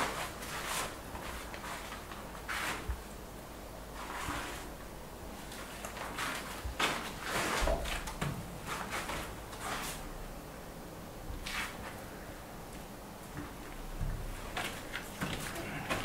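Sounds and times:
paintbrush swishing on wall: 0:00.0 - 0:03.1, 0:03.9 - 0:04.8, 0:05.4 - 0:10.1, 0:11.4 - 0:12.0
plastic sheet rustling: 0:00.0 - 0:03.1, 0:04.0 - 0:04.8, 0:05.4 - 0:10.2.

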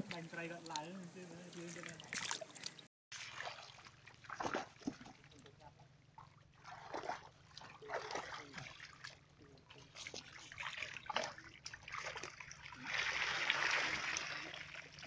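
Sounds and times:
splashing in shallow muddy water: 0:00.0 - 0:15.0.

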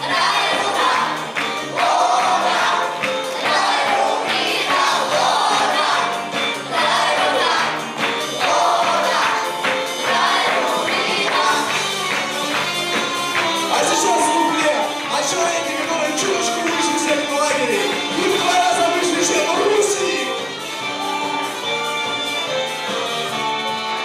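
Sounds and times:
children singing in chorus: 0:00.0 - 0:11.8
backing track with steady beat: 0:00.0 - 0:24.0.

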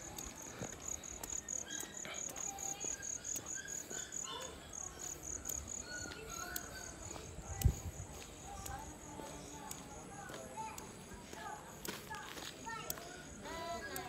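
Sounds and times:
cricket chirping: 0:00.0 - 0:07.4.

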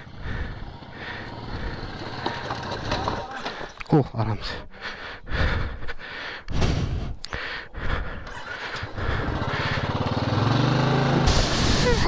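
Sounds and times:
motorcycle engine revving: 0:00.0 - 0:03.7, 0:08.2 - 0:12.0.

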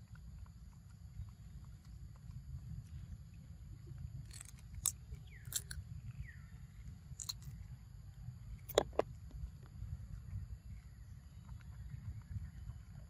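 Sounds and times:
monkey crunching mango: 0:03.9 - 0:06.3, 0:06.9 - 0:07.7.

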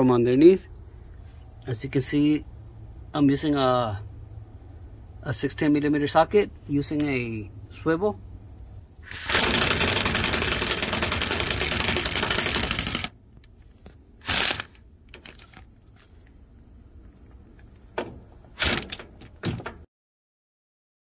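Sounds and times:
ratchet tool clicking: 0:09.1 - 0:13.1, 0:14.2 - 0:15.4.

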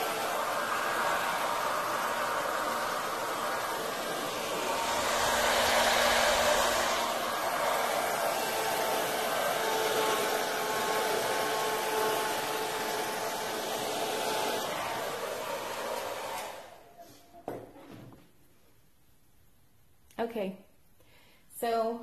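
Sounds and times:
hot-air dryer blowing: 0:00.0 - 0:17.0.

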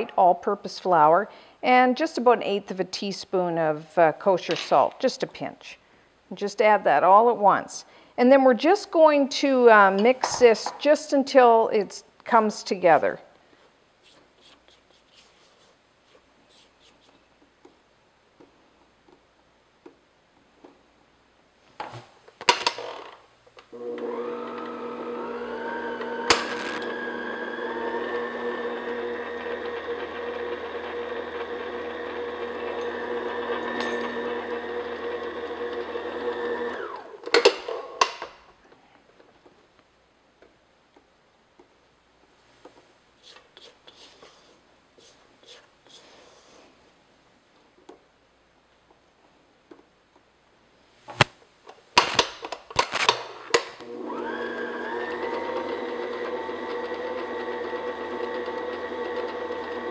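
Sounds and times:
stand mixer motor running: 0:23.8 - 0:37.0, 0:53.8 - 0:59.9.

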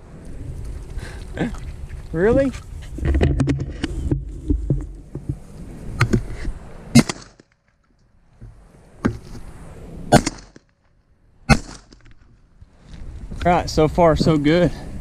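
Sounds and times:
shotgun blasts: 0:06.9 - 0:07.5, 0:10.1 - 0:10.6, 0:11.5 - 0:12.1.

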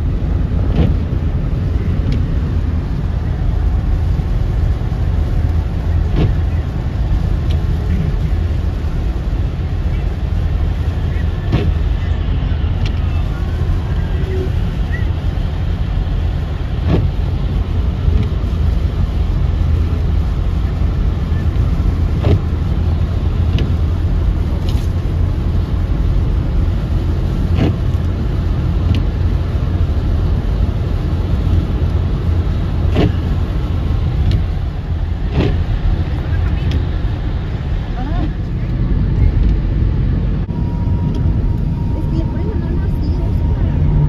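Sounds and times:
road and tyre noise inside car: 0:00.0 - 0:44.0.

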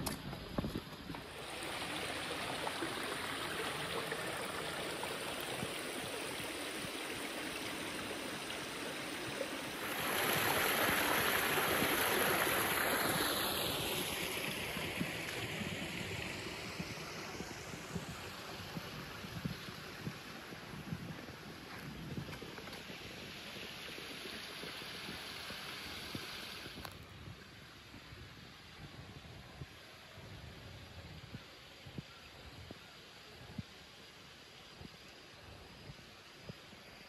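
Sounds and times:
stream running over rocks: 0:00.0 - 0:29.3.

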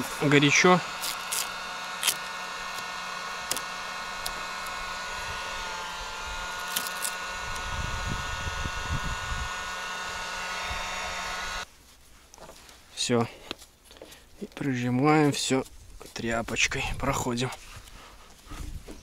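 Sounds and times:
heat gun whirring: 0:00.0 - 0:11.7.

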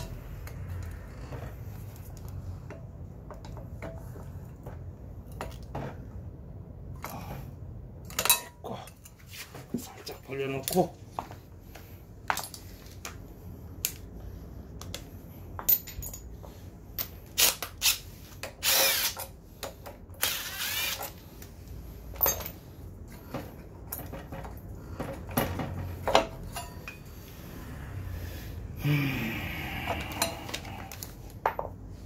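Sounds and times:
power driver spinning a bolt: 0:17.2 - 0:21.2.

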